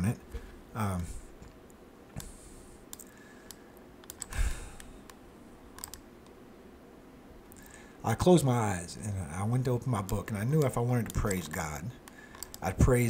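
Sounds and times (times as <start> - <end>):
mouse and keyboard clicks: 2.9 - 6.4, 12.3 - 12.6.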